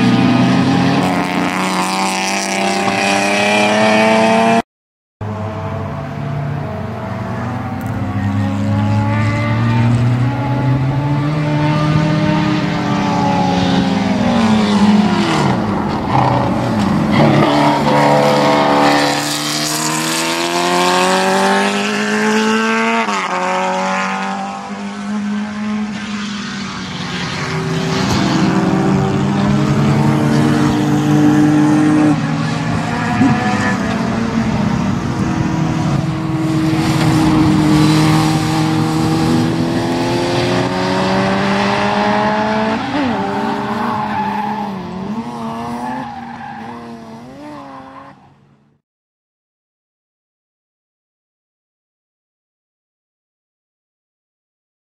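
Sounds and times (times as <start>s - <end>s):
race car engine revving: 0.0s - 4.6s, 5.2s - 48.3s.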